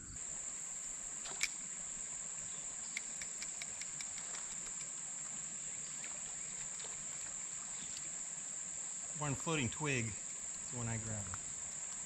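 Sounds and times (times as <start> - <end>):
crickets chirping: 0.0 - 12.0
light ticks: 2.9 - 4.9.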